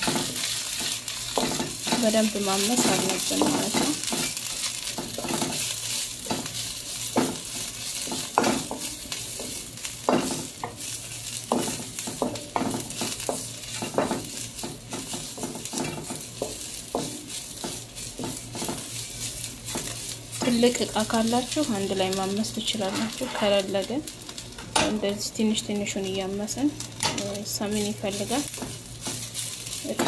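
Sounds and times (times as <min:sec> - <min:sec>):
leaves sizzling in frying pan: 0:00.0 - 0:30.0
wooden spatula scraping pan: 0:22.7 - 0:23.6.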